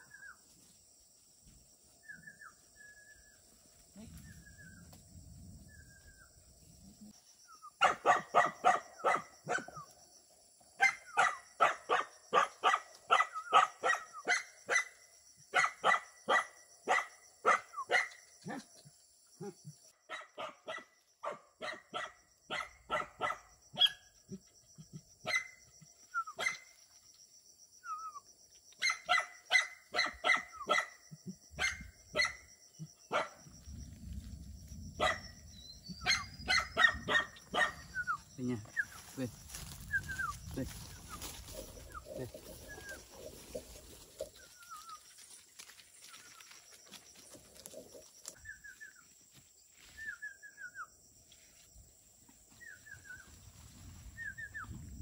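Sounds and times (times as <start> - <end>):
dog barking: 7.8 - 9.9, 10.8 - 18.7, 20.1 - 24.0, 25.2 - 25.6, 26.3 - 26.7, 28.8 - 31.0, 31.6 - 32.5, 33.1 - 33.5, 35.0 - 35.3, 36.0 - 38.1.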